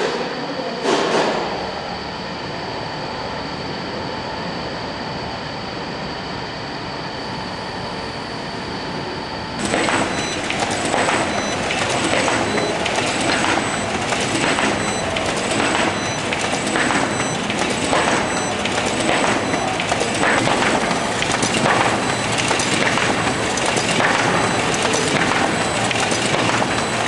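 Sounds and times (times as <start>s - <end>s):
machine humming with tones: 0.0s - 27.0s
mechanical clatter: 9.6s - 27.0s.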